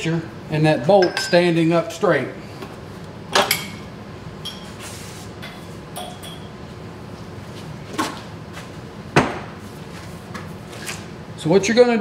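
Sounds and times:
metal tools clinking: 1.0 - 1.5.

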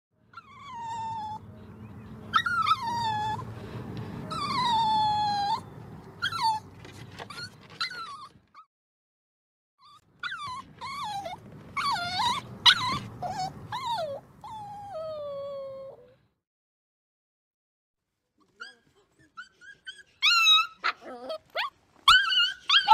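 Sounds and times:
dog whining: 0.3 - 1.4, 2.3 - 3.5, 4.3 - 8.7, 9.8 - 16.2, 18.5 - 22.9
dog yipping: 2.3 - 3.4, 6.2 - 8.7, 9.8 - 16.1, 18.6 - 22.9.

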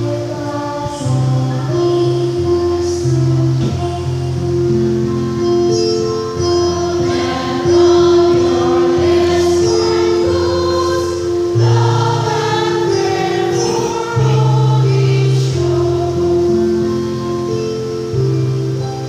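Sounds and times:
sustained low accompaniment notes: 0.0 - 19.0
women's choir singing: 6.4 - 17.3.

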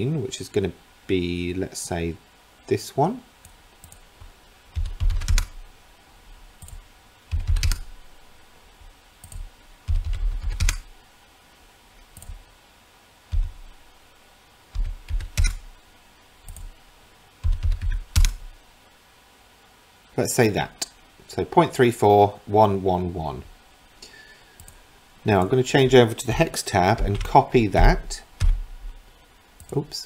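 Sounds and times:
computer keyboard clicks: 4.8 - 5.5, 6.6 - 7.9, 9.2 - 10.8, 14.8 - 15.6, 17.4 - 18.4.

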